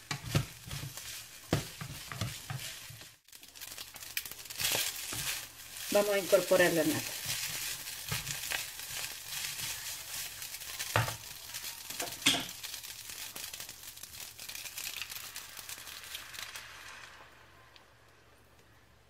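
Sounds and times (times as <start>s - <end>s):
food sizzling in a frying pan: 0.0s - 18.9s
cream pouring into pan: 12.6s - 18.2s.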